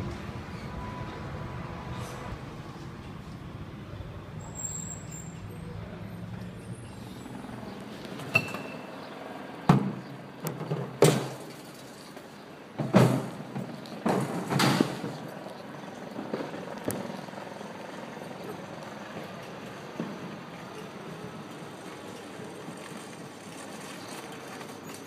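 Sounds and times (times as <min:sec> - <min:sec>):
faint city street background: 0:00.0 - 0:25.0.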